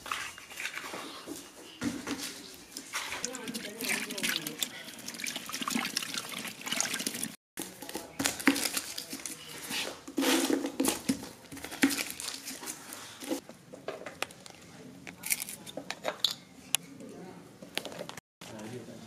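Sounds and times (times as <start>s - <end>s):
hand sloshing liquid in basin: 2.9s - 7.4s.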